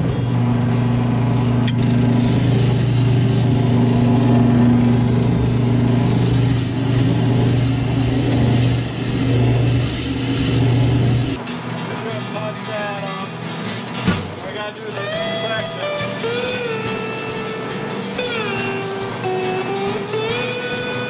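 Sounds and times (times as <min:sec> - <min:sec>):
drum sander motor hum: 0:00.0 - 0:11.9
sanding wood grinding: 0:02.0 - 0:11.4.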